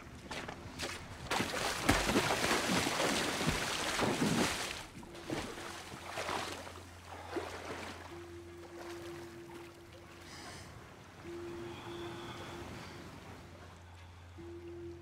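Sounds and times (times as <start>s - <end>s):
water sloshing: 0.3s - 15.0s
legs splashing through water: 0.7s - 10.5s.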